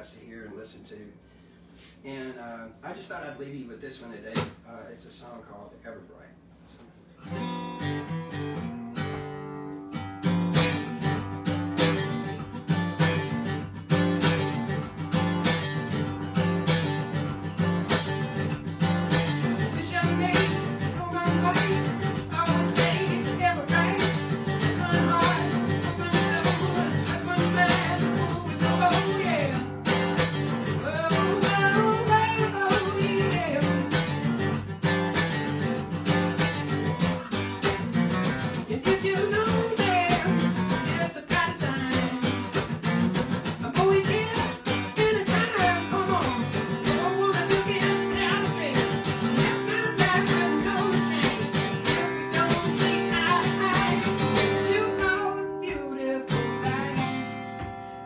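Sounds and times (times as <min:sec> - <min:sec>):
acoustic guitar playing: 0:06.9 - 0:58.0
man singing: 0:19.4 - 0:29.8, 0:30.6 - 0:34.1, 0:38.6 - 0:42.5, 0:43.6 - 0:57.4.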